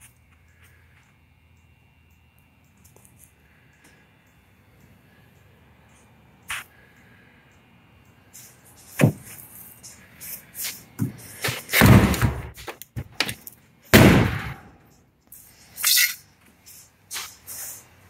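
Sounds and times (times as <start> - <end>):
heavy thuds: 10.9 - 13.2
knocks and thuds in van: 11.8 - 13.1.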